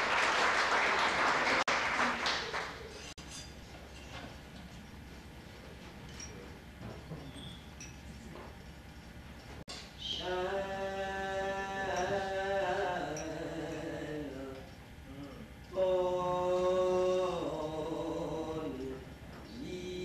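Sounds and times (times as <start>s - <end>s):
woman singing long notes: 10.0s - 14.7s, 15.7s - 20.0s.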